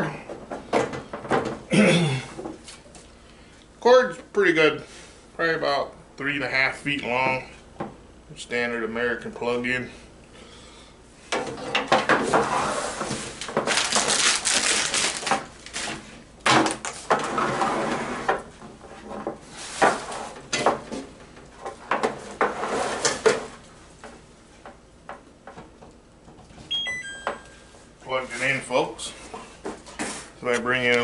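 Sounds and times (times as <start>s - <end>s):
electronic chime: 26.7s - 27.7s.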